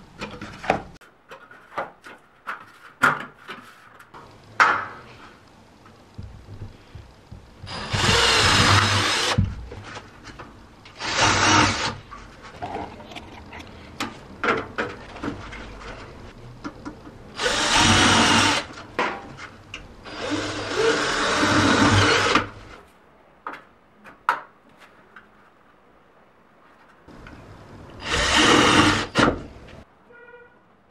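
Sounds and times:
cordless drill drilling into steel: 0:07.7 - 0:09.4, 0:17.4 - 0:18.7, 0:20.1 - 0:22.5, 0:28.0 - 0:29.2.

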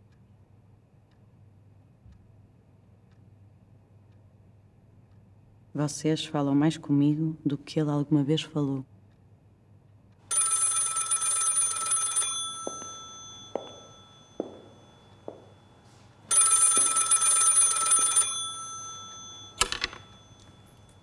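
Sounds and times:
telephone bell ringing: 0:10.3 - 0:21.0.

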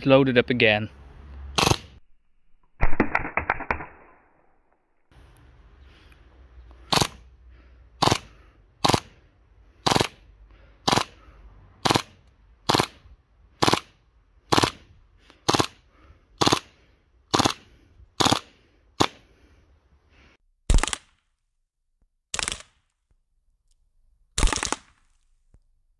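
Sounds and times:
airsoft pistol shots: 0:01.6 - 0:02.0, 0:02.8 - 0:04.2.

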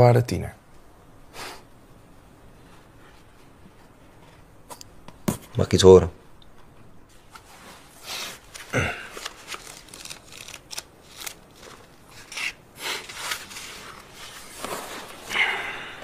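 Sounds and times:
notebook pages rustling: 0:07.1 - 0:15.4.

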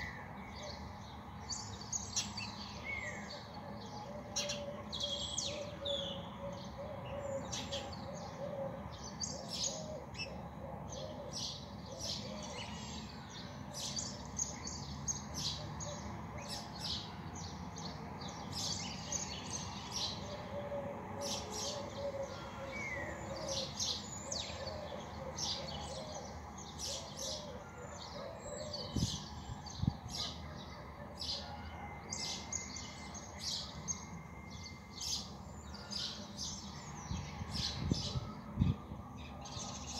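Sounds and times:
small birds chirping: 0:00.0 - 0:10.4.

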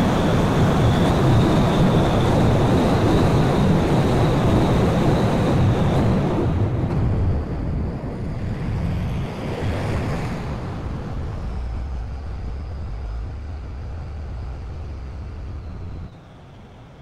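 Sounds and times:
farm machinery engine rumble: 0:11.1 - 0:16.1.

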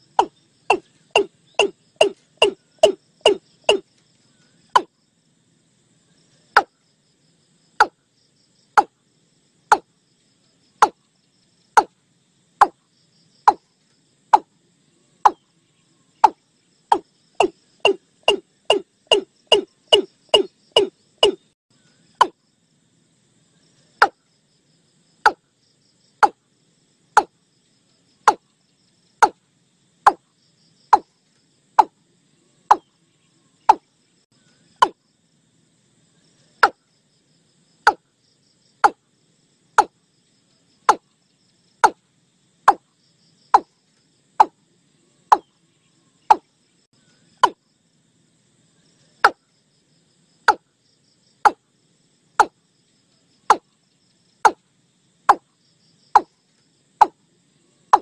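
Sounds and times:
crickets trilling: 0:00.0 - 0:58.0
bird knocking calls: 0:00.1 - 0:03.8, 0:04.7 - 0:04.9, 0:10.8 - 0:11.0, 0:16.2 - 0:21.5, 0:28.3 - 0:28.5, 0:34.8 - 0:35.0, 0:40.9 - 0:41.1, 0:46.3 - 0:46.5, 0:47.4 - 0:47.6.

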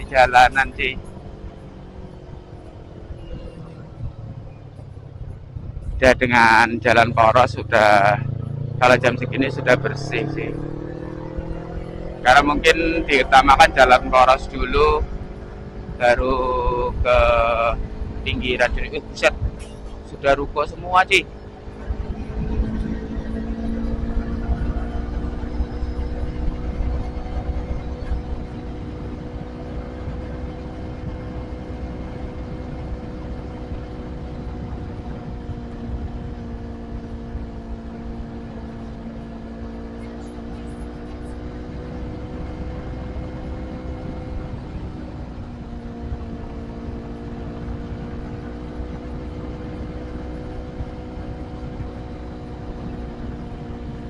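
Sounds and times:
wind rumble on microphone: 0:00.0 - 0:07.2, 0:14.0 - 0:39.2, 0:40.3 - 0:54.0
motorcycle engine cruising: 0:00.0 - 0:54.0.

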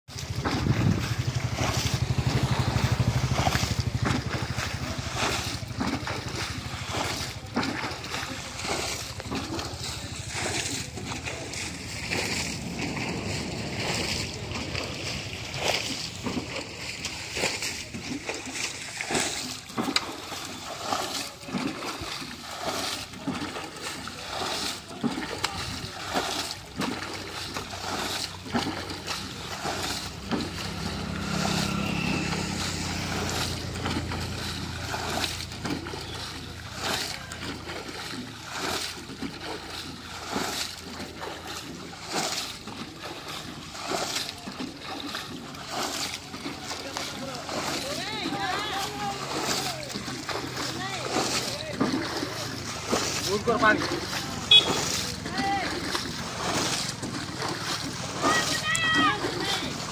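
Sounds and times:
can splashing water: 0:00.1 - 0:59.9
low steady hum: 0:00.2 - 0:43.8.

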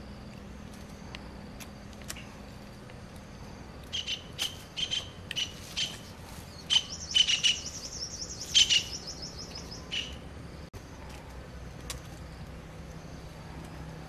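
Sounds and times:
birds chirping: 0:02.1 - 0:10.7
fast high bird trill: 0:03.9 - 0:10.2.

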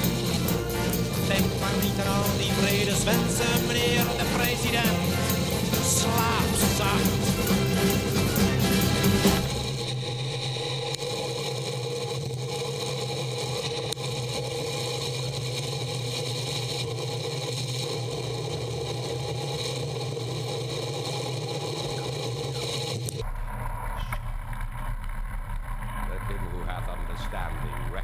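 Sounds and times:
bike tyres rolling on asphalt: 0:09.6 - 0:28.0.

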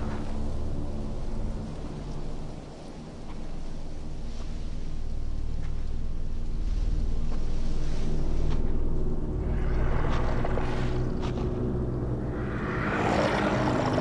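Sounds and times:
deep rumbling drone: 0:05.2 - 0:14.0.

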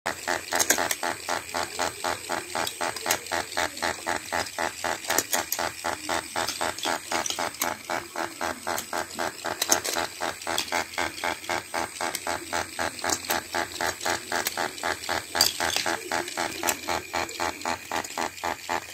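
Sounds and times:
toy motor and gears rasping: 0:00.1 - 0:18.9.

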